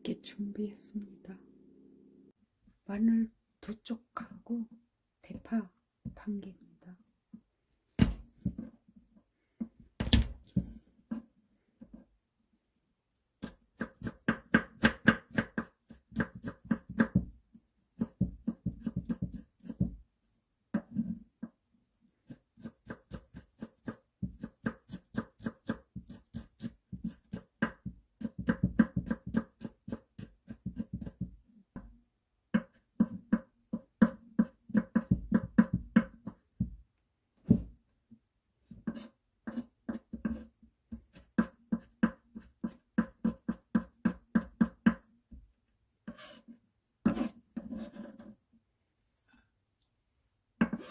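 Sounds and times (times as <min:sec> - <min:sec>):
knife chopping on wooden board: 0:13.4 - 0:17.3, 0:18.0 - 0:20.0, 0:22.3 - 0:31.4, 0:32.6 - 0:36.8, 0:38.7 - 0:45.0, 0:47.0 - 0:48.0, 0:50.6 - 0:50.9.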